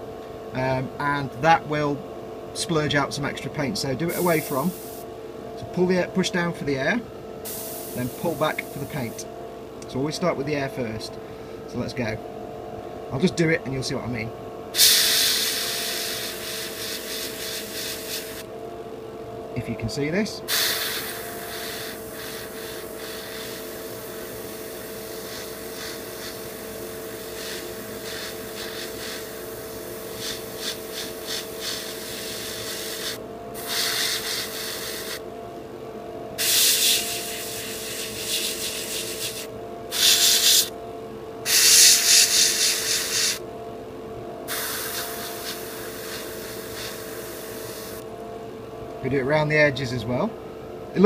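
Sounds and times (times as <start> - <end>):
spray booth and compressor hum: 0.0 - 50.4
airbrush hissing: 4.1 - 5.0, 7.5 - 9.2, 14.8 - 18.5, 20.5 - 35.2, 36.4 - 40.7, 41.5 - 43.4, 44.5 - 48.0.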